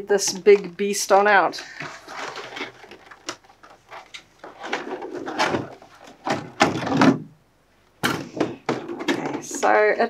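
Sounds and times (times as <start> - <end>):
plastic tray scraping cardboard: 1.6 - 7.1.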